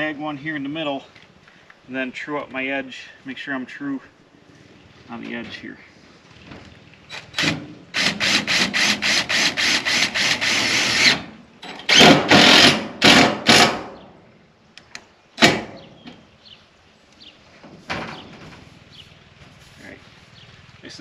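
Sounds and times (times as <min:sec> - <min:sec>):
cordless drill driving screws: 0:07.2 - 0:13.9.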